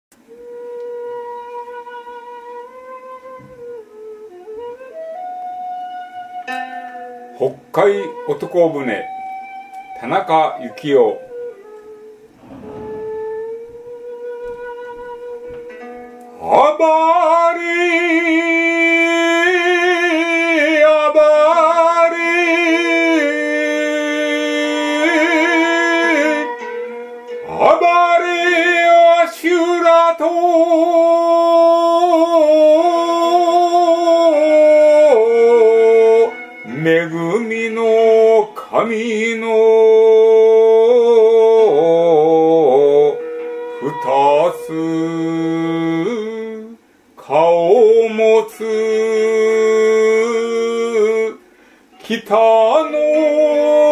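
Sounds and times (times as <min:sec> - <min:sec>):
recorded backing music: 0:00.1 - 0:53.9
man chanting with vibrato: 0:43.8 - 0:51.4.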